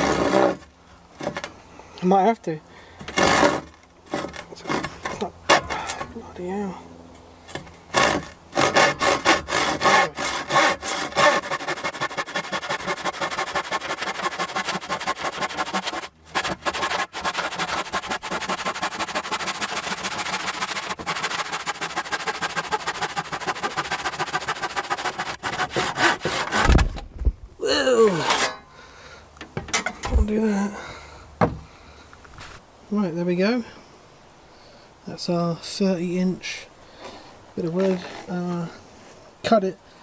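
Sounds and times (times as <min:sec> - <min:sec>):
handsaw cutting wood: 0:00.0 - 0:01.5, 0:03.0 - 0:06.2, 0:07.5 - 0:26.8
low thump: 0:26.6 - 0:27.4, 0:31.4 - 0:31.7.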